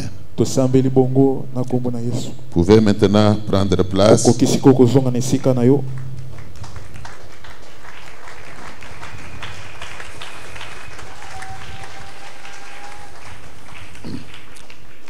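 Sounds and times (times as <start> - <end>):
congregation clapping: 5.2 - 15.0.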